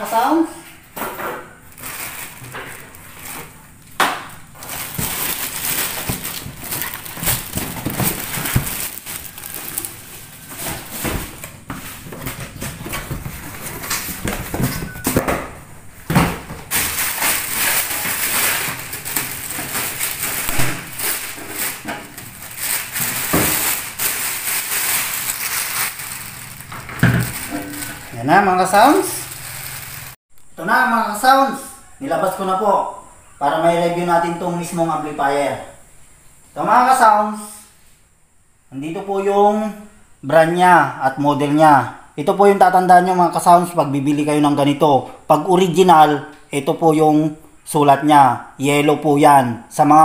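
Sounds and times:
plastic bag crinkling: 1.6s - 3.7s, 4.4s - 11.4s, 16.7s - 30.2s
cardboard box rustling: 4.6s - 13.9s.

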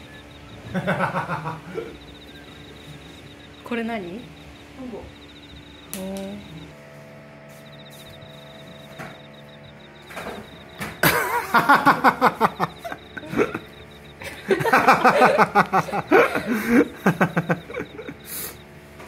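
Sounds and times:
people laughing: 0.4s - 3.4s, 10.2s - 18.6s.

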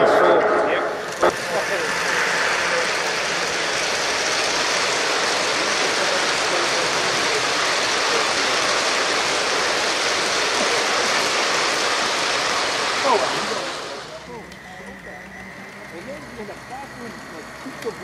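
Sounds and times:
model train wheels rolling on track: 0.9s - 18.0s.

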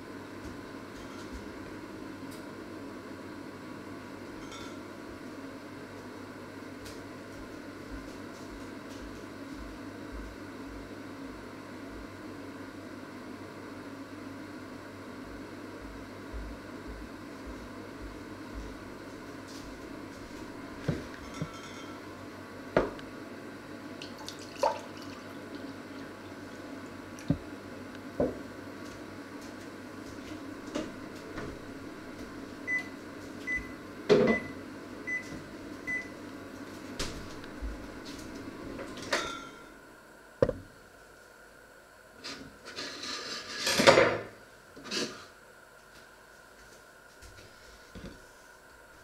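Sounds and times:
kitchen appliance humming: 13.2s - 40.8s.

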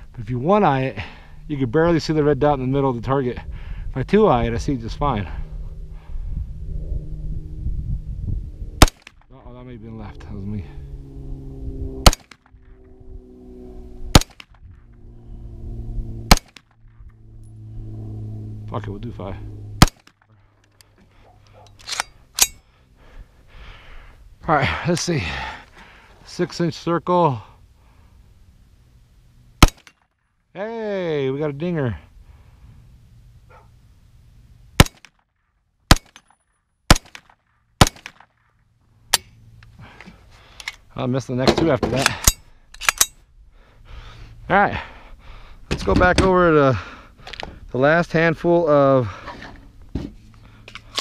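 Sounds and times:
pistol shots: 8.8s - 9.2s, 12.0s - 12.4s, 14.1s - 14.5s, 16.3s - 16.6s, 19.8s - 20.1s, 29.6s - 30.0s, 34.8s - 35.1s, 35.9s - 36.2s, 36.9s - 38.2s
sharp gunshots: 8.8s - 9.3s, 12.0s - 12.5s, 14.1s - 14.6s, 16.2s - 16.8s, 19.8s - 20.2s, 29.6s - 30.0s, 34.8s - 35.2s, 35.9s - 36.2s, 36.9s - 38.3s.

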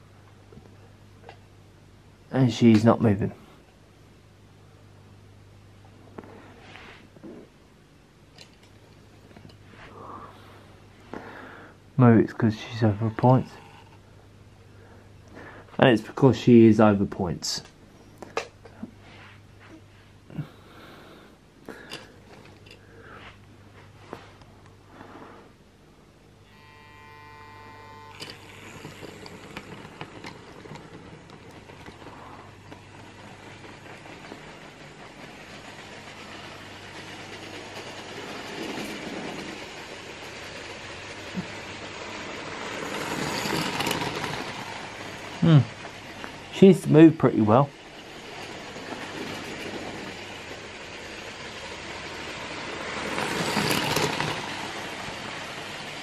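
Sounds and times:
model train rattling on track: 12.0s - 14.0s, 27.7s - 56.0s
model train motor whine: 12.3s - 14.1s, 26.4s - 56.0s.

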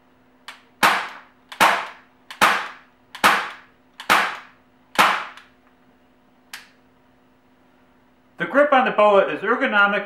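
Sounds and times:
air pistol shots: 0.8s - 5.5s.

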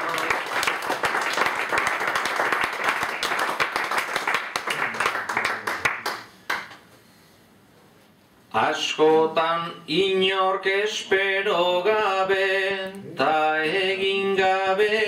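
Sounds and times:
audience applauding: 0.0s - 6.8s.

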